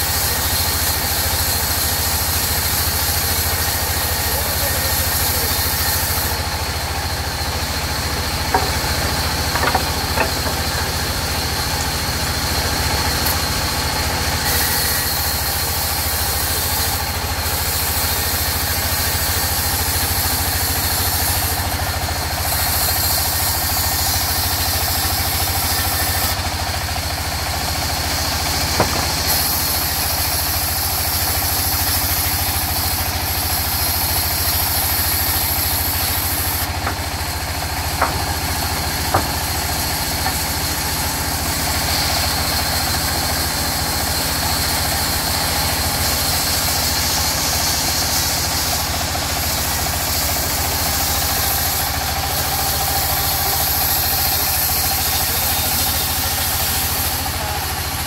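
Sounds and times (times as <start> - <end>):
band saw cutting wood: 0.0 - 58.0
low machine drone: 6.4 - 14.5
short sharp knocks: 8.5 - 10.9, 28.8 - 29.3, 38.0 - 39.6.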